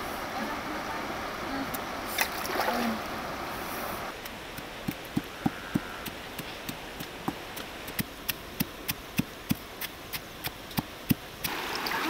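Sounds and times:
pestle pounding in stone mortar: 0:04.8 - 0:11.6.

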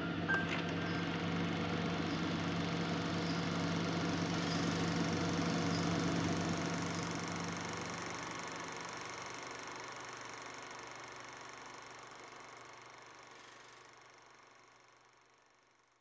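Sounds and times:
low machine hum: 0:00.0 - 0:11.8.

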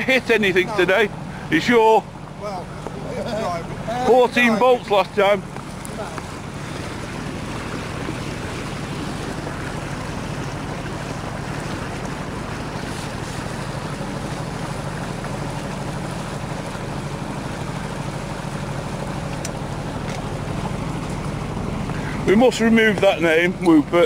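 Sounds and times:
boat engine running: 0:00.0 - 0:24.0
water rushing along hull: 0:00.0 - 0:24.0.

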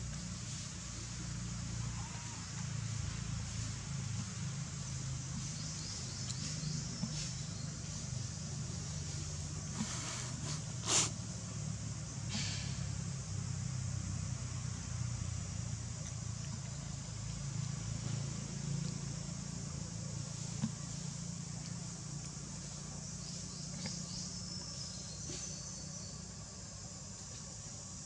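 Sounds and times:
low mechanical hum: 0:00.0 - 0:28.0
high insect buzz: 0:00.2 - 0:14.4
short insect chirps: 0:01.7 - 0:28.0.

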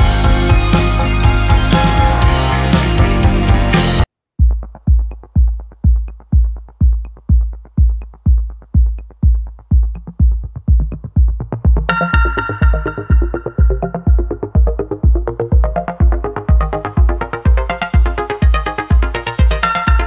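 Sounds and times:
deep kick drum beating: 0:00.0 - 0:20.0
synth layer: 0:11.9 - 0:20.0.

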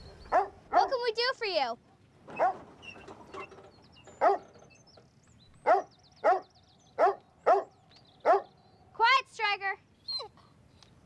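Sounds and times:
dog barking: 0:00.3 - 0:01.0, 0:02.4 - 0:02.6, 0:04.2 - 0:04.5, 0:05.6 - 0:08.5.

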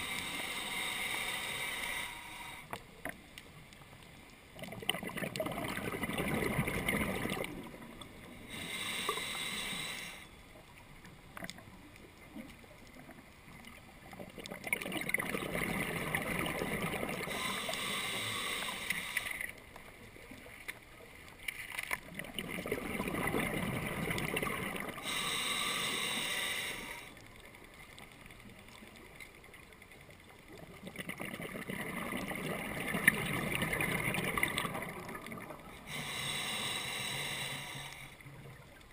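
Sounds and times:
regulator inhale hiss: 0:00.0 - 0:02.7, 0:08.4 - 0:10.4, 0:17.2 - 0:19.6, 0:25.0 - 0:27.2, 0:35.8 - 0:38.3
exhaled bubbles gurgling underwater: 0:04.5 - 0:21.2, 0:22.0 - 0:38.9.

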